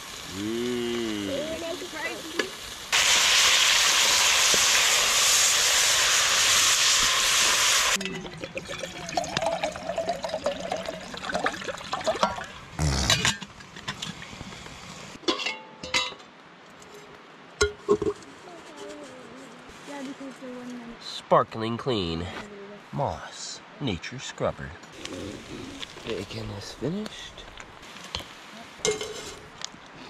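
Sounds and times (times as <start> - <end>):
bacon sizzling in a pot: 0.0 - 8.0
water pouring into a steel pot: 5.8 - 12.6.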